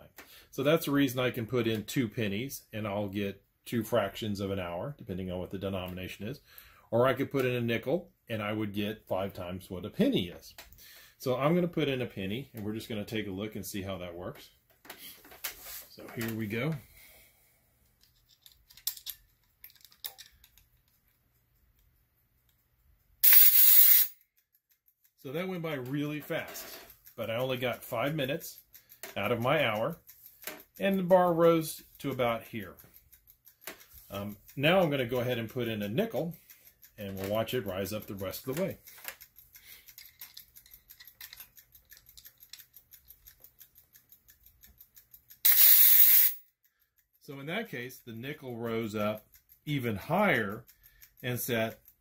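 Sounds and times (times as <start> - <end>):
light mechanism clicks: 24.4 - 45.4
rapid whirring gear rattle: 25.3 - 46.2.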